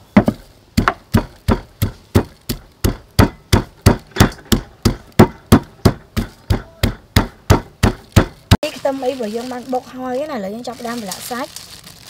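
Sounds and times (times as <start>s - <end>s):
pestle pounding in wooden mortar: 0.1s - 8.7s.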